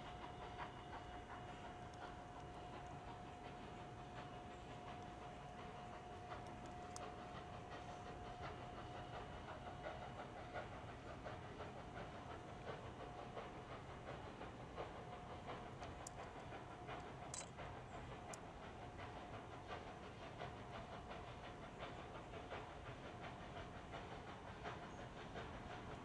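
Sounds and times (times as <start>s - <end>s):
faint steam puffs: 0.0s - 26.0s
steam locomotive rumble and hiss: 0.0s - 26.0s
sharp clicks: 17.3s - 17.6s.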